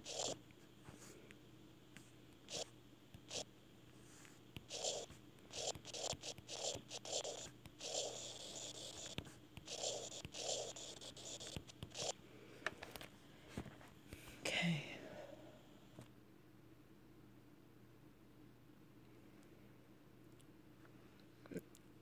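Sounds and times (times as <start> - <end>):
stylus scratching on touchscreen: 0.0 - 0.4, 2.5 - 3.5, 4.6 - 12.2.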